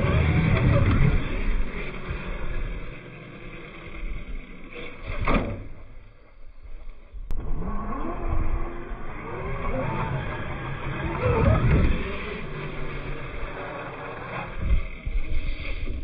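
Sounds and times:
electric motor whining: 0.0 - 16.0
toy truck landing thud: 5.1 - 6.0.

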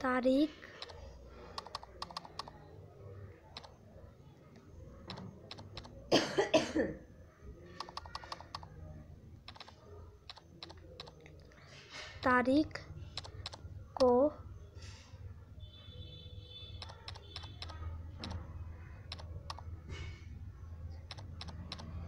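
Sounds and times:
smartphone keyboard clicks: 1.6 - 2.6, 5.1 - 6.0, 7.8 - 8.7, 9.5 - 9.7, 10.3 - 11.5, 13.2 - 14.2, 16.8 - 18.4, 19.1 - 19.7, 21.1 - 22.0
person coughing: 6.1 - 7.0.

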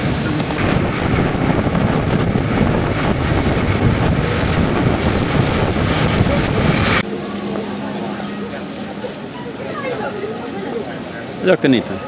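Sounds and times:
vehicle rumble and rattle: 0.0 - 9.6.

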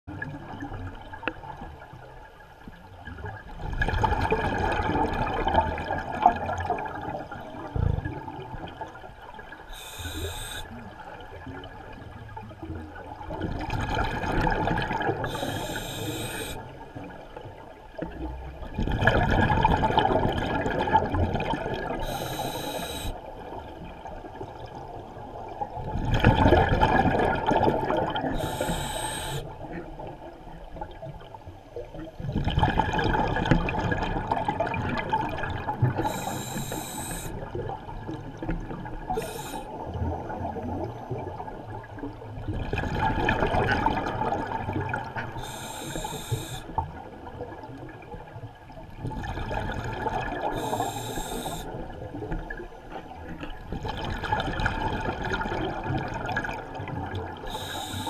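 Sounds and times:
exhaled bubbles underwater: 0.1 - 58.0
regulator hiss: 9.7 - 10.7, 15.3 - 16.6, 22.0 - 23.2, 28.4 - 29.5, 36.0 - 37.3, 39.2 - 39.7, 45.4 - 46.7, 50.6 - 51.7, 57.5 - 58.0.

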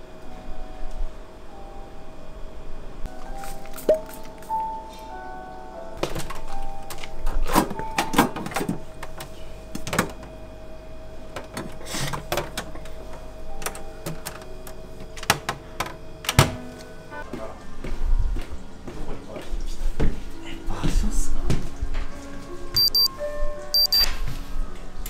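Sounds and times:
faint steady hum: 0.0 - 17.2.

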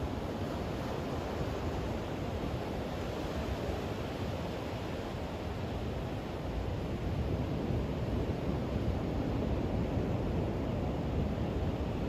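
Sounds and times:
ocean surf breaking on beach: 0.0 - 12.0.

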